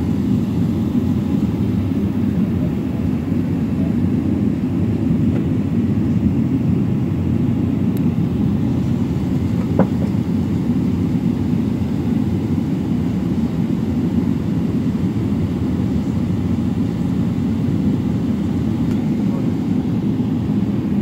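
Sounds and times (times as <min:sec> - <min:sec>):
aircraft cabin rumble: 0:00.0 - 0:21.0.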